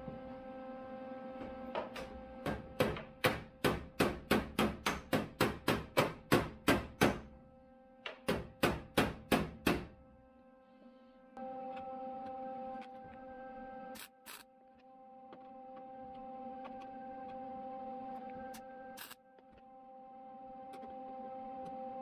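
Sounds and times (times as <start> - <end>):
hammer knocking sheet metal: 2.5 - 7.3, 8.1 - 9.9.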